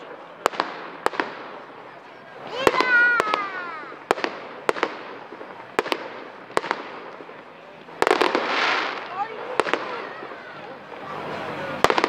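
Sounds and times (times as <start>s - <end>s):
firework shells bursting: 0.0s - 12.0s.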